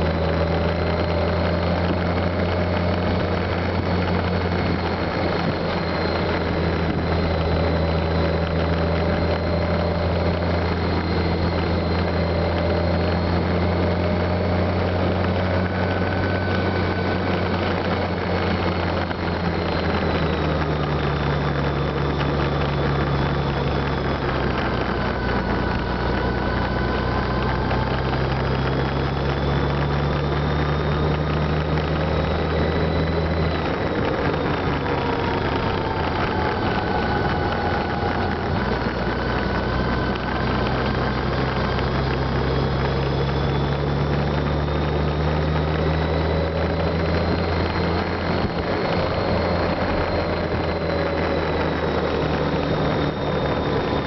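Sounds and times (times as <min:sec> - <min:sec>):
motorcycle engine cruising: 0:00.0 - 0:54.0
wind and road noise: 0:00.0 - 0:54.0.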